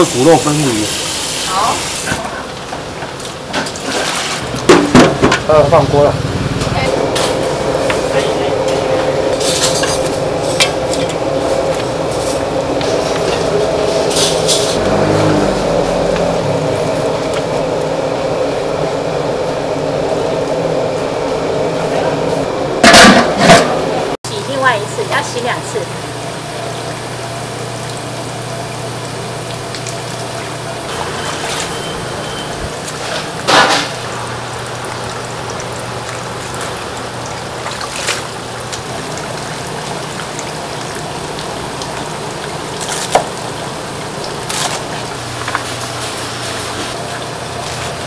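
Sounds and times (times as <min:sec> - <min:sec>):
kitchen hum: 0:00.0 - 0:48.0
tap water running into sink: 0:26.2 - 0:31.9, 0:32.6 - 0:48.0
water pouring off greens: 0:26.2 - 0:48.0.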